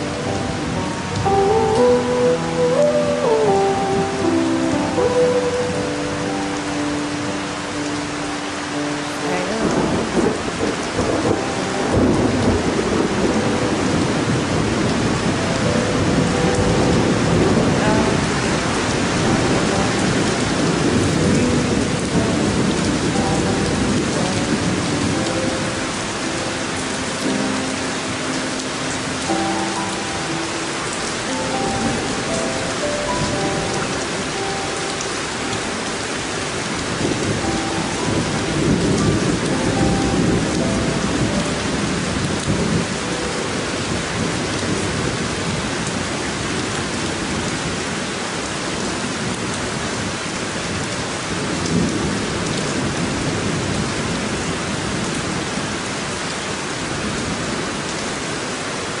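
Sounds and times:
steady rain: 0.0 - 59.0
thunder rumbling: 8.8 - 48.1.

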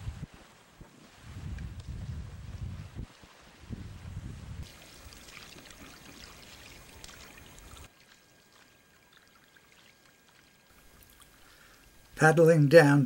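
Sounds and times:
wind buffeting microphone: 0.0 - 4.8
paddles splashing in water: 4.6 - 12.2.

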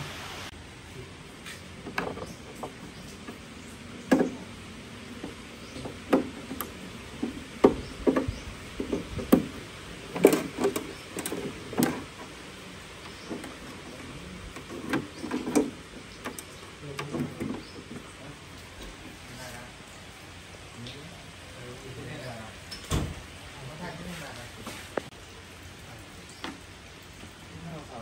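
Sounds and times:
cables bumping wooden case: 1.8 - 12.4, 13.0 - 19.1.

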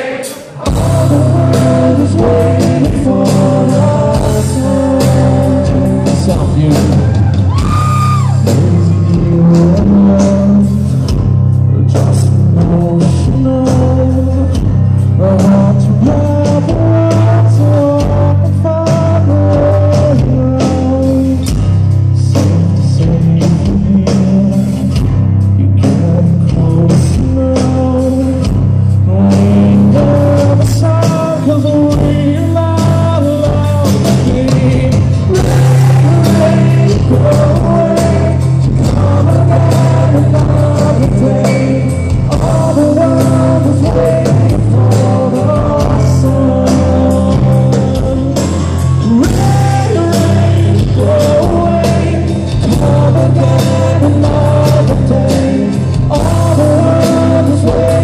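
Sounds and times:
acoustic guitars strumming: 0.0 - 58.0
drums: 0.0 - 58.0
man singing: 0.0 - 58.0.

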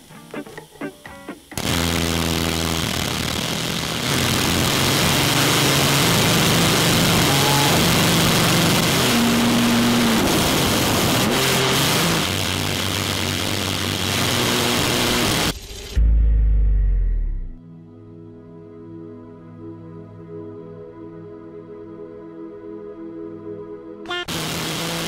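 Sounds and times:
rocket engine hissing roar: 1.6 - 16.0.

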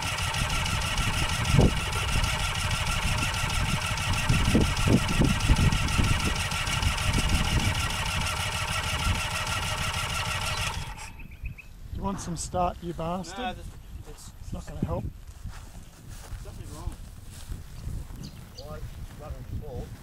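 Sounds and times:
two-stroke engine running: 0.0 - 11.2.

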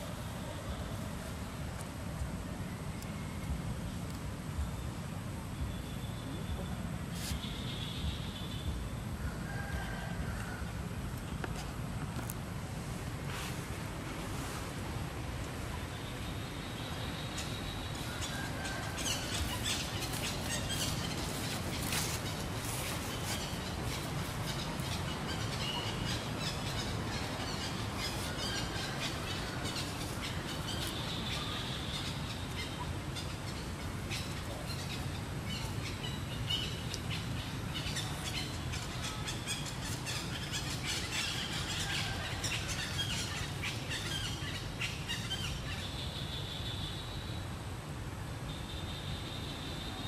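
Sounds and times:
birds chirping: 15.5 - 47.4.

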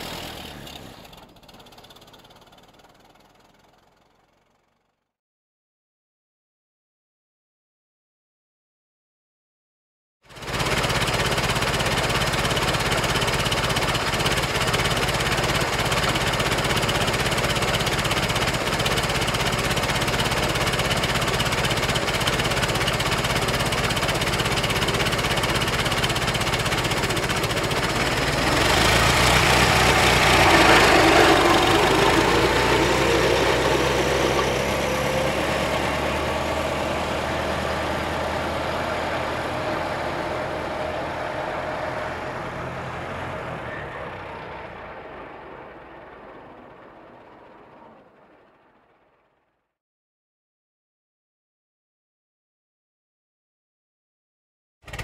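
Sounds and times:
car engine idling: 10.5 - 49.4.

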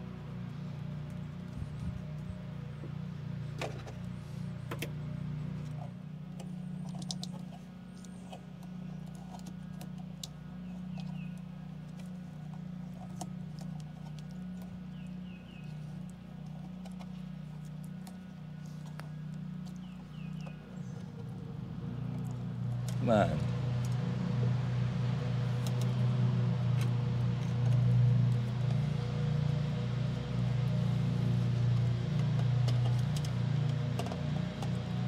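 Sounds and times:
low hum: 0.0 - 35.0.

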